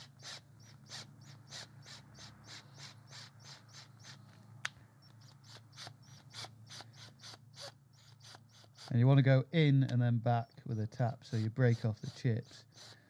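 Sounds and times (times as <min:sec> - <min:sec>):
tap rasping creaks cutting thread: 0:11.3 - 0:13.0.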